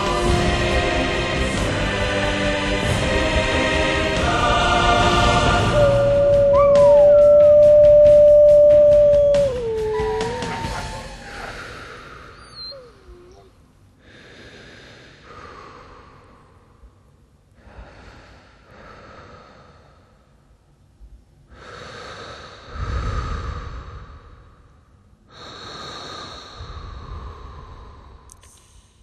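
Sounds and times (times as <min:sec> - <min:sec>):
deep breathing: 0:05.1 - 0:20.6, 0:21.5 - 0:29.0.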